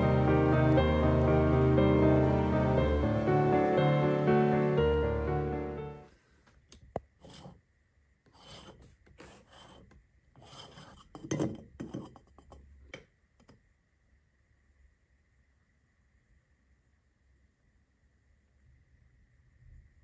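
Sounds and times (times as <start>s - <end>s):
metal cap scraping: 7.2s - 7.6s.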